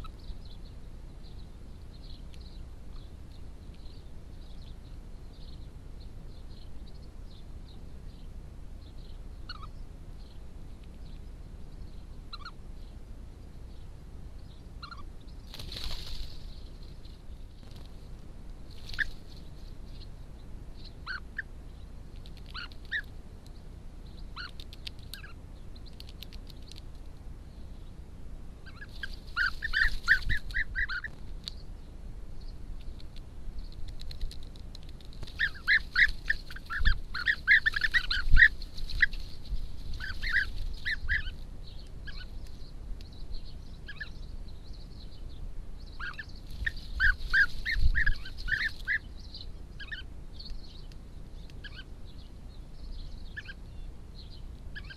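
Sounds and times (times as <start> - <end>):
birds calling in quick runs: 14.8 - 18.0, 18.7 - 20.1, 28.7 - 31.2, 33.6 - 42.7, 45.8 - 50.5.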